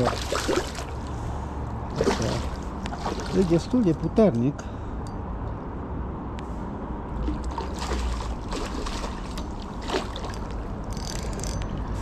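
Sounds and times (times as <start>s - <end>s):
fish splashing in water: 0.0s - 1.1s, 1.9s - 3.6s, 7.2s - 10.6s.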